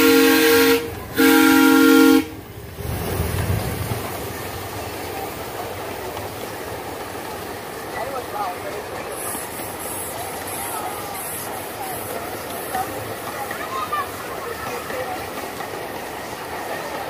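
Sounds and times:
steam locomotive chime whistle: 0:00.0 - 0:02.4
train cars rumbling on track: 0:00.0 - 0:17.0.

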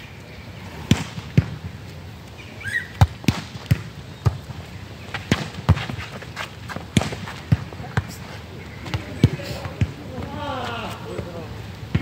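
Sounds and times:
ball hitting asphalt: 0:00.8 - 0:01.7, 0:02.9 - 0:08.1, 0:08.8 - 0:10.4.

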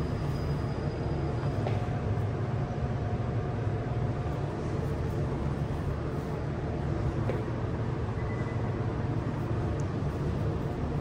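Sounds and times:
kitchen machinery hum: 0:00.0 - 0:11.0.

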